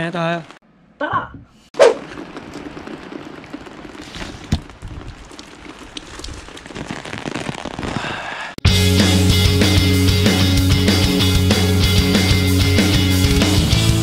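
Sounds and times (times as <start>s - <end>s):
crackly drop hits: 1.8s - 8.2s
rain pattering: 1.8s - 8.6s.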